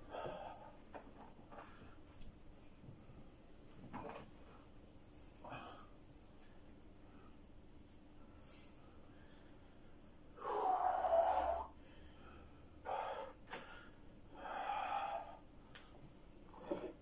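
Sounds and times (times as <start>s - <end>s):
man breathing hard: 0.0s - 0.8s, 5.4s - 6.0s, 8.4s - 15.9s.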